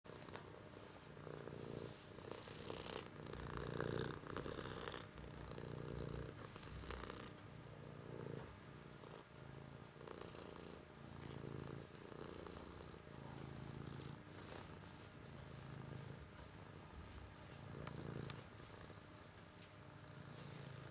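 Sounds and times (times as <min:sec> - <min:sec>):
cat purring: 0:00.1 - 0:20.9.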